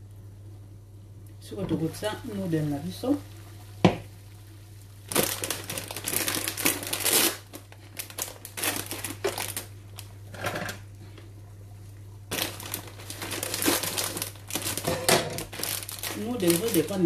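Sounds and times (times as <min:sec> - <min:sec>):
plastic packet crinkling: 0:05.1 - 0:10.2, 0:12.3 - 0:17.0.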